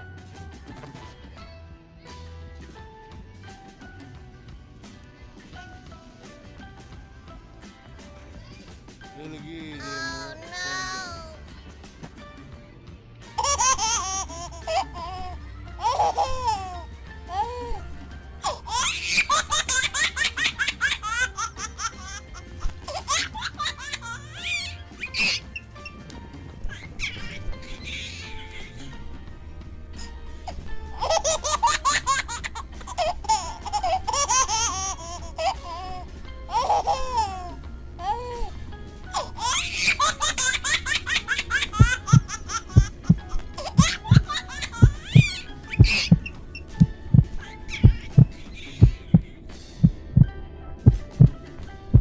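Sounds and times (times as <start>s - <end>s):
high-pitched laughter: 18.4s - 25.6s, 26.8s - 28.9s, 39.4s - 46.2s
heartbeat thumps: 41.8s - 52.0s.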